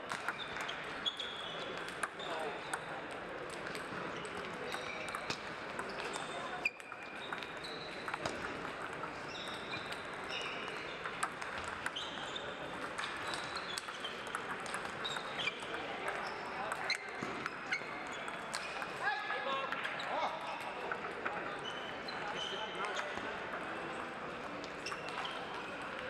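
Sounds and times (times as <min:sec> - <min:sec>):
table tennis balls clicking: 0:00.1 - 0:19.0, 0:22.2 - 0:26.0
murmur of voices: 0:12.4 - 0:26.0.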